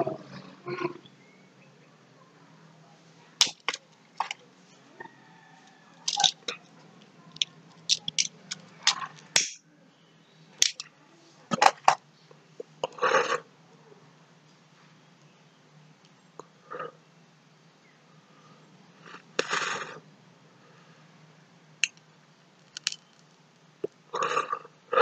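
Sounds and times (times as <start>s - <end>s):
sharp clicks and knocks: 7.3s - 9.6s, 10.6s - 10.9s, 22.6s - 23.2s.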